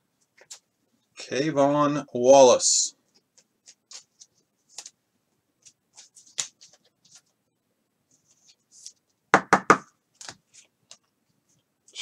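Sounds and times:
cards rustling: 0:03.2 - 0:05.0, 0:05.6 - 0:07.4.

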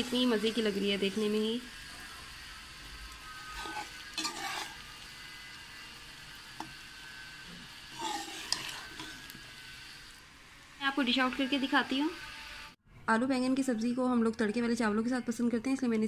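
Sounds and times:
oil sizzling: 0:00.0 - 0:12.8
metal spoon scraping pan: 0:03.4 - 0:05.0, 0:07.6 - 0:09.4.

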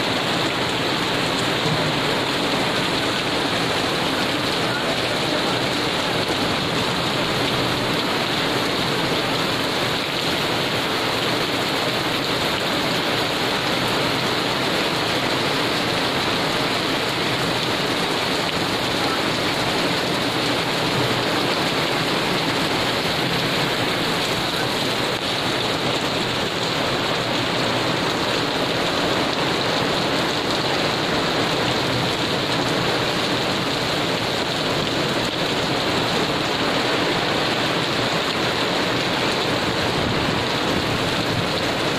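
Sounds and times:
heavy rain on paving: 0:00.0 - 0:41.9.

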